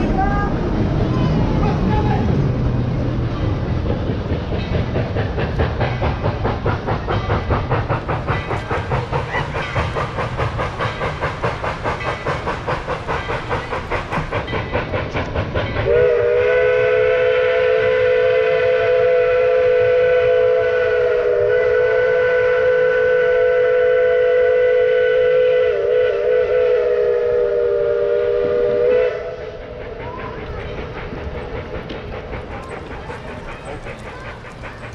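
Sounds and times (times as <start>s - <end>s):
faint train noise: 0.0s - 34.9s
steam locomotive whistle: 15.8s - 29.6s.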